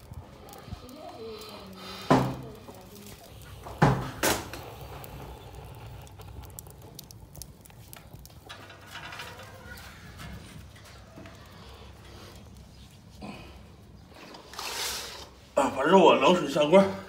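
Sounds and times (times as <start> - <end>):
fire crackling: 0.0 - 17.0
firewood knocking in stove: 2.0 - 2.8, 3.6 - 4.6.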